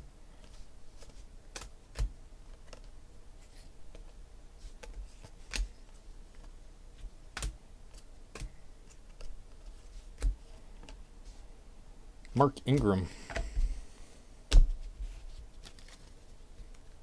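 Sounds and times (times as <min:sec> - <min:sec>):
cards clicking and snapping: 0:00.4 - 0:03.0, 0:03.9 - 0:06.5, 0:07.3 - 0:11.0, 0:15.6 - 0:16.8.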